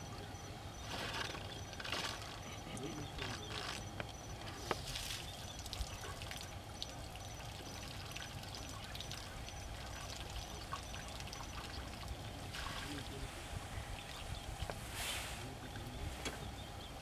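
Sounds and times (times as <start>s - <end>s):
water pouring and trickling: 0.8s - 13.2s.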